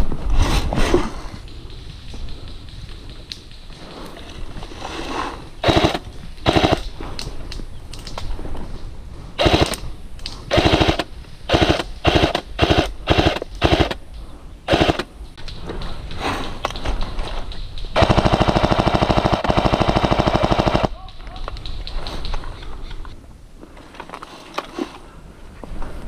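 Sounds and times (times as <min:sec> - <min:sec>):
electric toy gun bursts: 0:05.6 - 0:06.8, 0:09.4 - 0:09.8, 0:10.5 - 0:14.0, 0:14.7 - 0:15.1.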